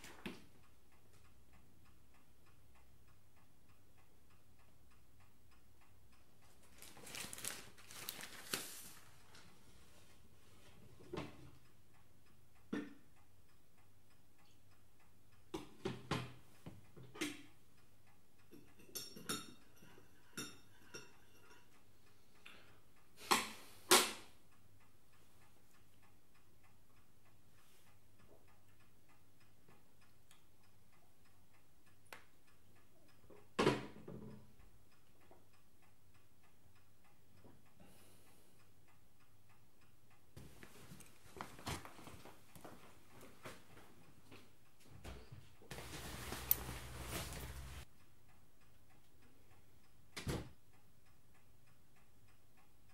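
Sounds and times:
crockery clinking and knocking: 18.6 - 21.7.

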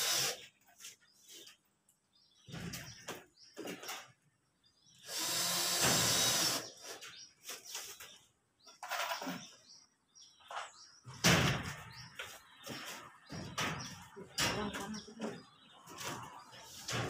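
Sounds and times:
cordless drill driving screw: 5.1 - 6.8
knocks and scrapes: 10.4 - 17.0.

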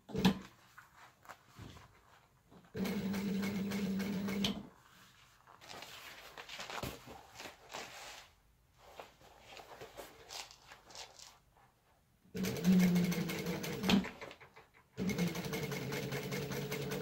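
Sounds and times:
sewing machine stitching: 2.7 - 4.6, 12.3 - 17.0
stiff material rustling and scraping: 4.8 - 11.5.

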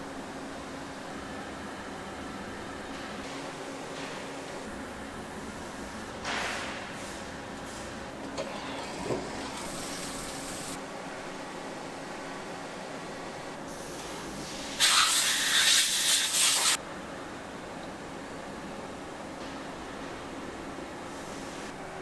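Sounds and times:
steady machine hum: 0.0 - 14.8
loud hissing spray: 14.5 - 16.8.

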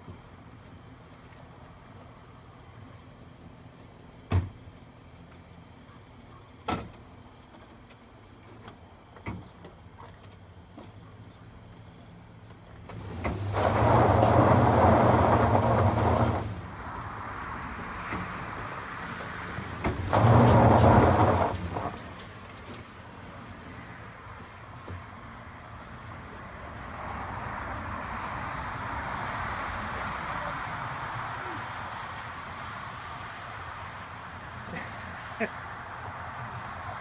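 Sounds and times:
truck engine revving: 12.9 - 22.3.

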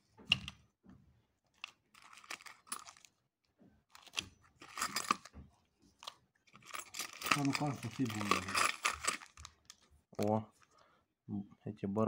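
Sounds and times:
plastic bags crinkling: 1.9 - 3.1, 4.0 - 5.3, 6.6 - 10.4.

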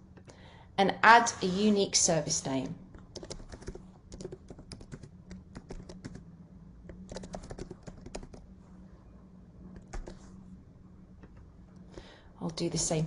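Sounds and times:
faint low hum: 0.0 - 13.0
typing on computer keyboard: 2.9 - 6.3, 6.9 - 8.4, 9.8 - 10.2.

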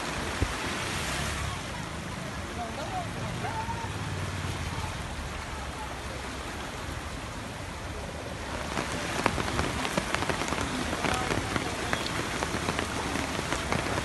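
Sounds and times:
raindrops hitting plastic surface: 0.0 - 1.6, 8.2 - 14.0
heavy rain rushing: 0.0 - 14.0.

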